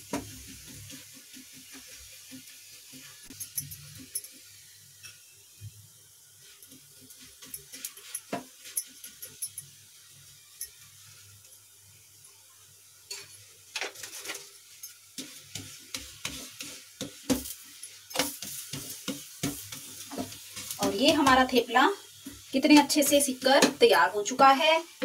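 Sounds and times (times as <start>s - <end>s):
spatula scraping griddle: 0.0s - 4.2s, 6.4s - 9.4s, 13.1s - 23.8s
flatbread sizzling on griddle: 0.0s - 25.0s.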